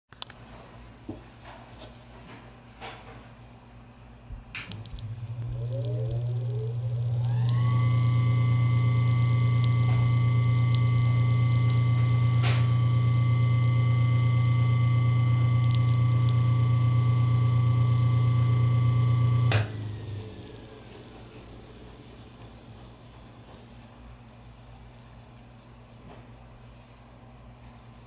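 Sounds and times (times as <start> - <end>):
electric fan motor humming: 4.3 - 25.6
fan switch click: 4.5 - 5.1.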